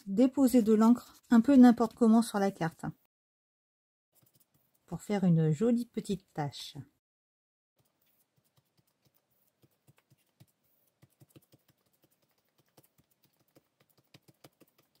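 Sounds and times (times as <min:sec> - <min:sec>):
fingertips tapping paper: 0:04.2 - 0:04.9, 0:07.8 - 0:15.0.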